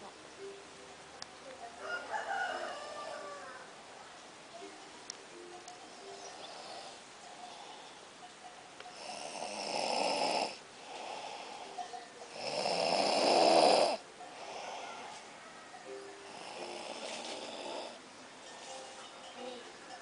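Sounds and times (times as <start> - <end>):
man snoring loudly: 9.0 - 11.7, 12.3 - 14.9, 16.3 - 18.0.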